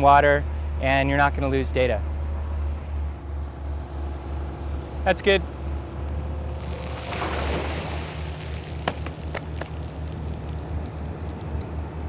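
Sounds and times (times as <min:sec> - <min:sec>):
excavator engine droning: 0:02.6 - 0:07.6
water splashing onto gravel: 0:06.5 - 0:12.0.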